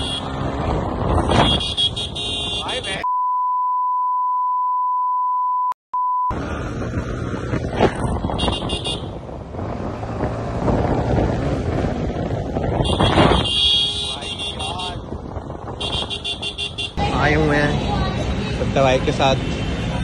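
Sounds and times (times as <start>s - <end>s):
street traffic: 0.0s - 3.1s, 6.3s - 20.0s
steady beep tone: 3.0s - 6.3s
wind on microphone: 7.4s - 13.6s.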